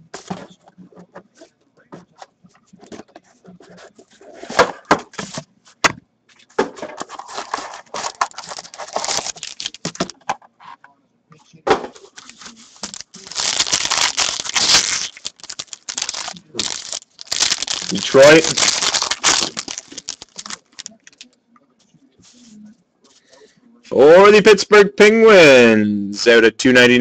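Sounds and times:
foil wrapper crinkling and tearing: 7.1s - 10.1s, 12.1s - 21.3s.

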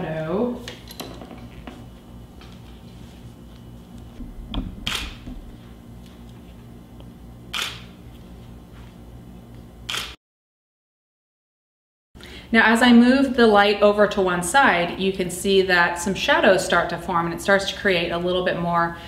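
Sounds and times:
low steady hum: 1.3s - 9.8s
camera shutter firing: 4.6s - 5.4s, 7.5s - 7.9s, 9.9s - 10.2s.

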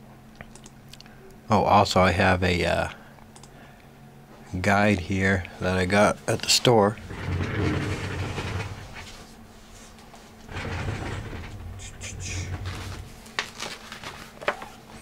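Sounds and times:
faint steady low hum: 0.0s - 15.0s
paper booklet rustling: 12.6s - 14.8s.

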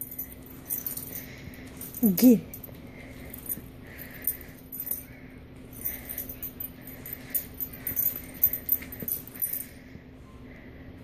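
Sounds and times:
light jingling: 0.0s - 9.9s.

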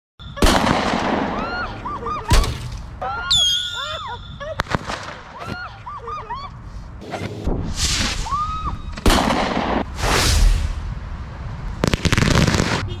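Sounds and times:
firework crack: 0.4s - 1.7s, 4.6s - 5.4s, 7.4s - 13.0s
firework bangs: 0.4s - 1.8s, 4.6s - 5.4s, 7.6s - 11.0s, 11.7s - 13.0s
firework whistle: 3.3s - 4.4s, 7.7s - 9.0s.

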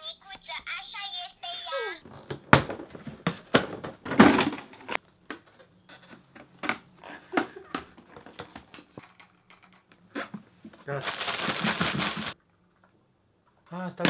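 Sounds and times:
plastic toy parts clicking and knocking: 7.7s - 9.9s.

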